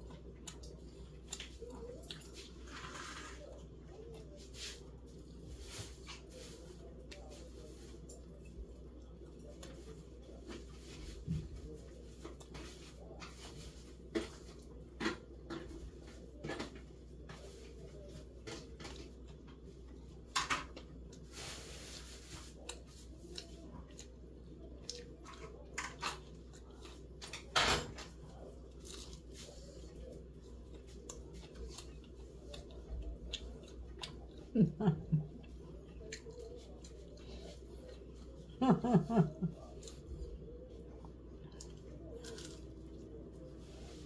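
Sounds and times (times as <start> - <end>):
chewing and tearing meat: 0.0 - 5.4, 22.4 - 38.5, 39.6 - 43.9.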